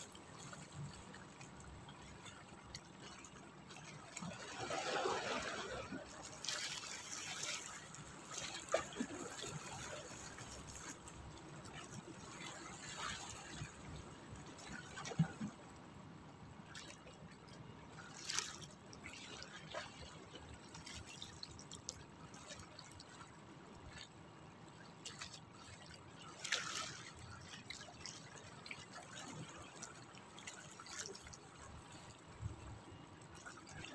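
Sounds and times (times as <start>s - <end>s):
waves lapping against rocks: 0.0s - 15.9s, 16.5s - 33.9s.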